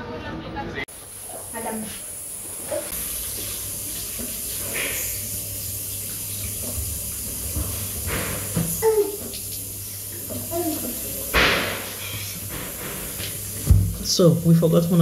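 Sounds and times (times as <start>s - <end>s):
tap water running into basin: 1.0s - 15.0s
knocks at sink: 11.3s - 14.0s.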